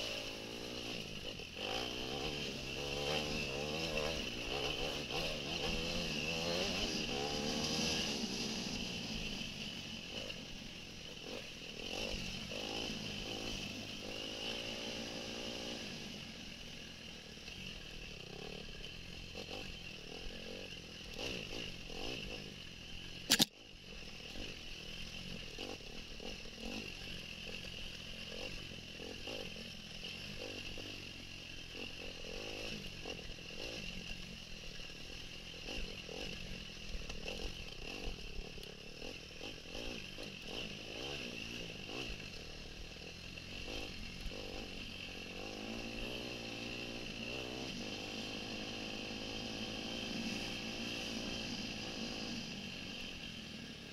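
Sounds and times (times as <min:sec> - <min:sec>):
dirt bike engine running: 0:00.0 - 0:53.9
sharp click: 0:23.3 - 0:23.5.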